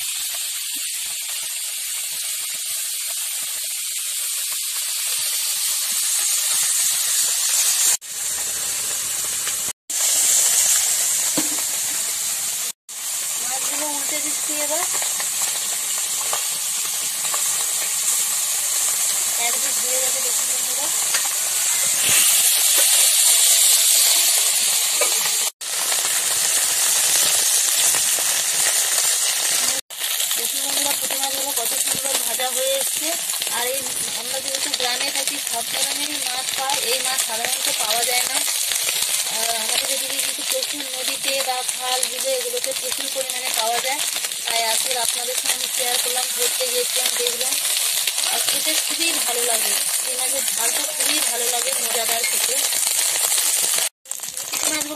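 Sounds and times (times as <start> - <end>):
fish sizzling in hot oil: 0.0 - 54.9
metal spatula scraping wok: 21.0 - 25.4
metal spatula turning fish: 49.8 - 54.9.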